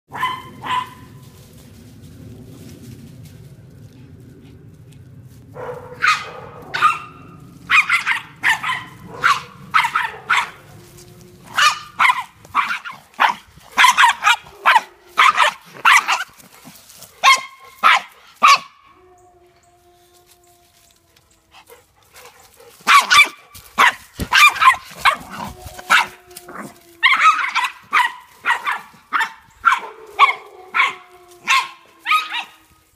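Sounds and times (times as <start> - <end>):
dogs barking: 0.1 - 1.2, 5.6 - 18.9, 21.6 - 32.6.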